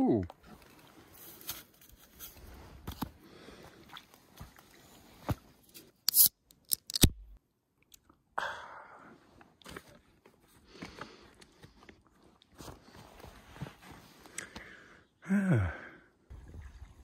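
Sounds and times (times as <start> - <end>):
soda can opening with fizz: 6.1 - 6.3.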